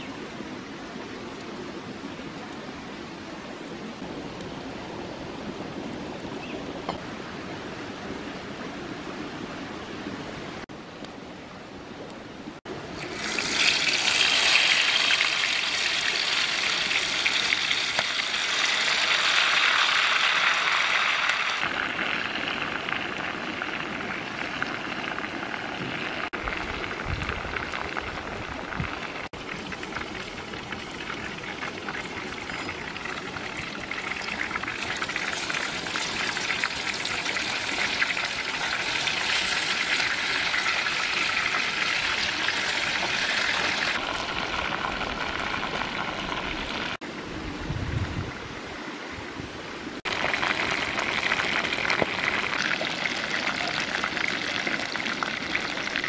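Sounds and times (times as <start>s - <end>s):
wings sizzling in hot oil: 13.0s - 23.7s, 29.4s - 47.0s, 50.1s - 56.0s.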